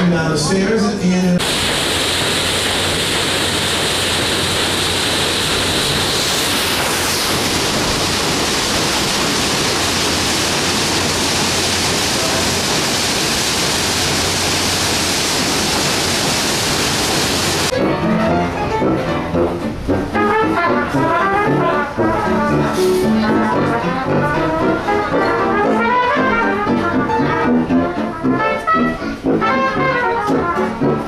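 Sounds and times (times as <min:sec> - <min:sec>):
paddlewheel churning water: 0:01.4 - 0:30.8.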